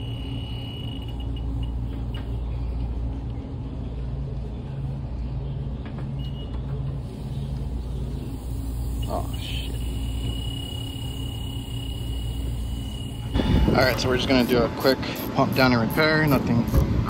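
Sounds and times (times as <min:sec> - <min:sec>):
high beep: 0:00.0 - 0:02.3, 0:09.0 - 0:13.9
air conditioner humming: 0:00.0 - 0:17.0.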